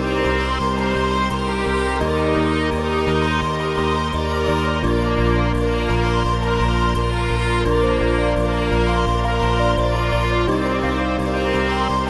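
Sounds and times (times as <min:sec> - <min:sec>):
sustained tone music: 0:00.0 - 0:12.0.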